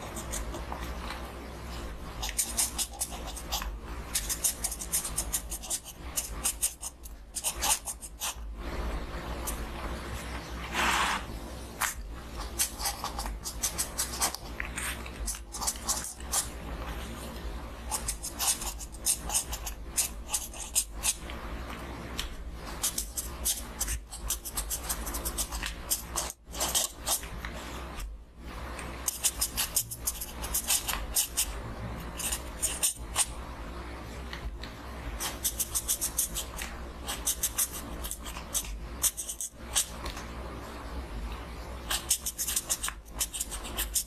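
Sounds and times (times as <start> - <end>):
pen scratching on paper: 0.0 - 0.9, 2.2 - 8.5, 10.6 - 11.3, 12.3 - 16.6, 17.8 - 21.2, 22.6 - 27.4, 29.0 - 33.4, 35.2 - 40.0, 41.9 - 44.0.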